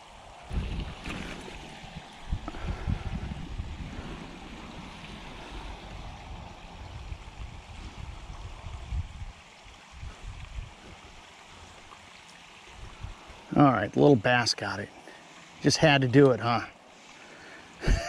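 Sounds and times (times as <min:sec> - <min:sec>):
wind rumble on microphone: 0:00.0 - 0:11.8, 0:12.7 - 0:13.5
creek flowing: 0:00.0 - 0:18.0.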